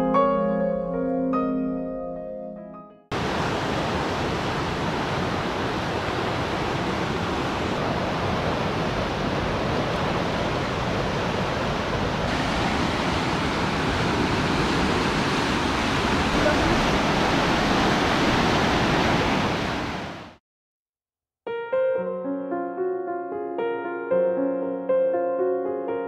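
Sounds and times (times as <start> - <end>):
river rushing over rapids: 3.2 - 20.4.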